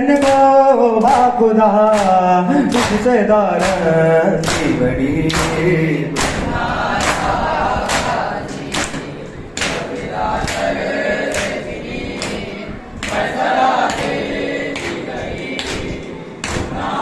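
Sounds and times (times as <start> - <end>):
men chanting in chorus: 0.0 - 17.0
men slapping chests in unison: 0.1 - 11.6, 13.0 - 17.0.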